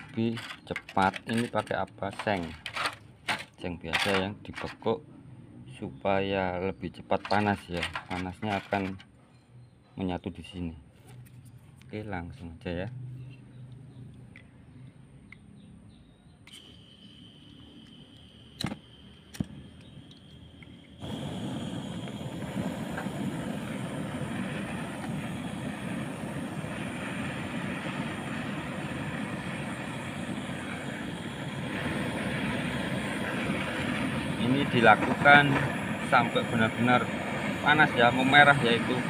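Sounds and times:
gas torch flame hissing: 0.0 - 2.9, 16.4 - 39.0
gas torch igniter clicks: 16.4 - 39.0.

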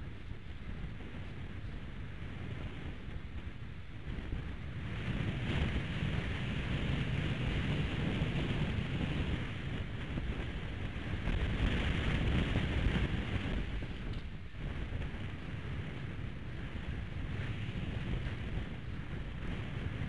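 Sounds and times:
gusty wind buffeting microphone: 0.0 - 20.0.

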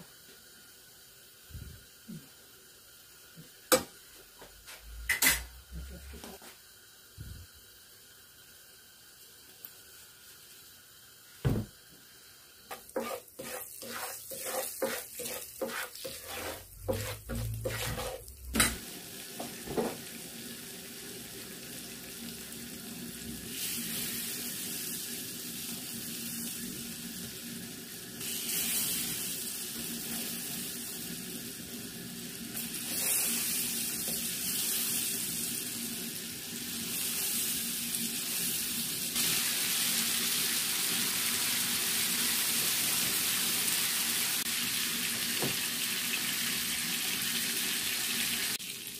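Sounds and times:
fish sizzling in oil: 6.6 - 48.9
spatula strokes in oil: 12.7 - 18.7, 32.5 - 35.4.

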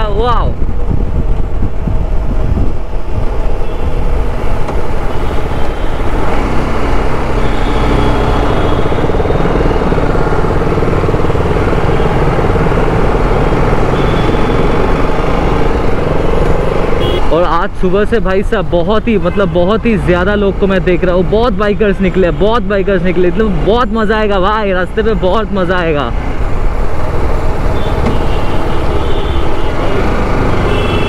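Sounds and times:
wind noise: 0.0 - 7.3
road noise: 0.0 - 31.0
motorcycle engine running: 0.6 - 17.2.

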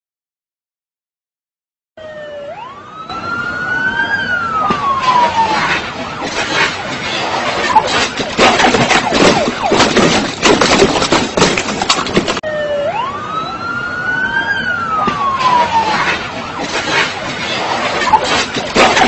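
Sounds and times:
police siren wail: 2.0 - 11.2, 12.3 - 19.0
loud rough crackling noise: 4.7 - 12.4, 15.2 - 19.0.

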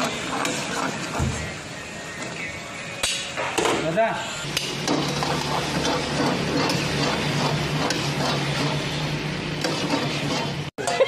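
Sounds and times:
metal tongs scraping a pan: 4.8 - 8.9, 9.6 - 11.0.

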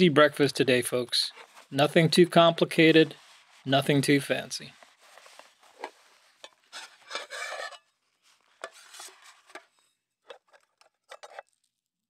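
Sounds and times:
cloth sack rustling: 4.7 - 7.1.

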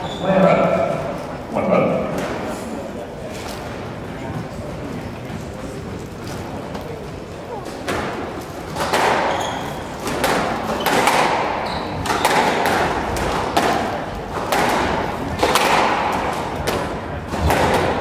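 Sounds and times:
squash ball cracking off rackets: 7.6 - 18.0.

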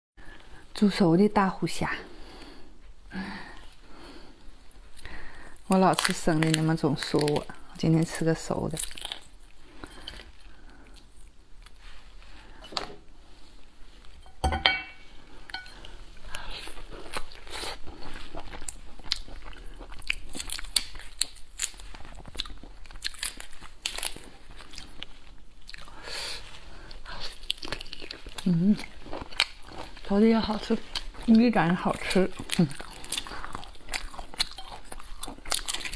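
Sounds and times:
chewing: 5.8 - 12.0, 15.5 - 35.9.

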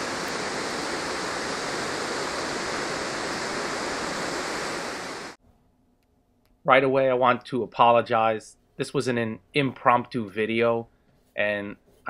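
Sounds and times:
river rushing over rocks: 0.0 - 5.4.

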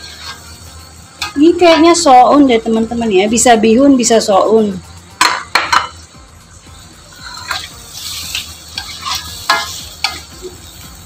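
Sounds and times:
ladle knocking against wok: 5.2 - 6.0.

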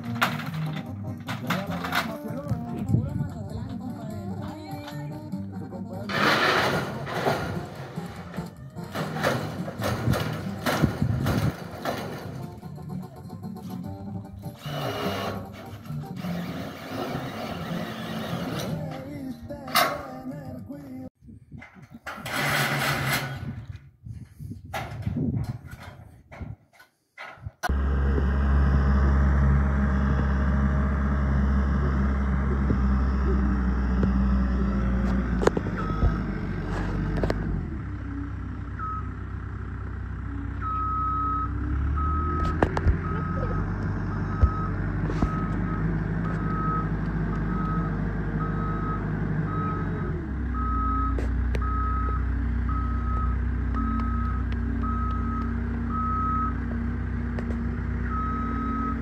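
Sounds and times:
skid steer engine running: 0.0 - 19.4, 27.7 - 59.0
reversing alarm beeping: 35.7 - 36.3, 38.8 - 39.2, 40.2 - 56.6, 58.1 - 59.0.

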